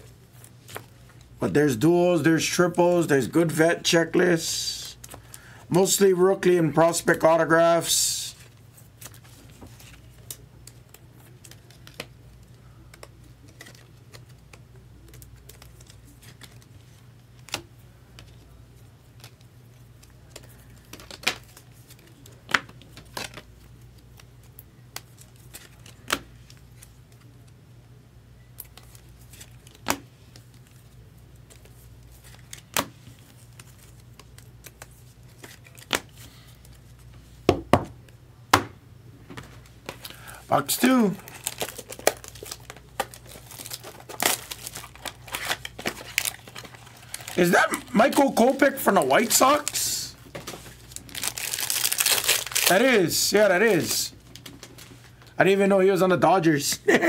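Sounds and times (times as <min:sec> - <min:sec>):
trading cards and packaging clicking: 0:39.5 - 0:55.2.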